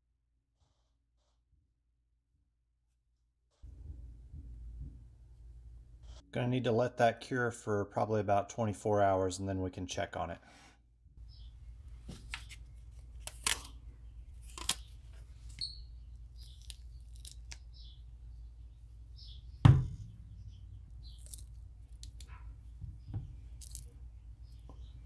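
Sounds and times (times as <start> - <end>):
low hum: 18.3 - 25.0
loud thump: 19.6 - 20.6.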